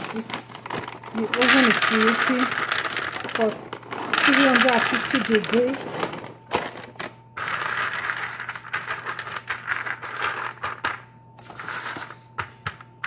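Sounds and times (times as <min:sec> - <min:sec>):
peanuts rattling on a metal sheet: 0:00.0 - 0:06.2, 0:07.4 - 0:11.0.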